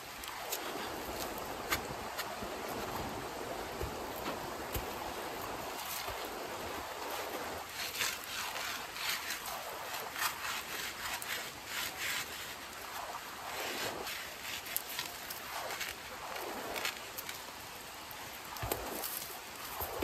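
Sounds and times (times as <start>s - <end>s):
campfire crackling: 0.0s - 20.0s
creek rushing: 0.0s - 20.0s
dry branches rustling and scraping: 0.0s - 20.0s.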